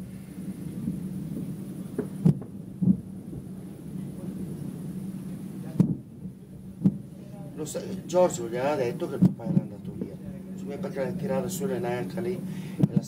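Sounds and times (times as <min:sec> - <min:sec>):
distant fireworks booming: 0:00.0 - 0:07.2
steady low rumble: 0:00.0 - 0:13.0.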